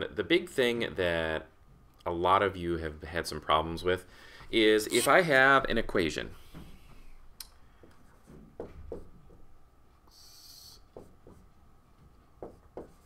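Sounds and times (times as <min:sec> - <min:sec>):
marker strokes on whiteboard: 0:10.0 - 0:11.6, 0:12.4 - 0:13.0.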